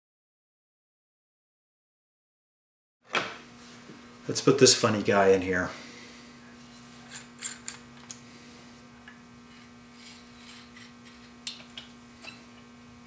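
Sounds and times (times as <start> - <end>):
faint steady hum: 3.1 - 13.0.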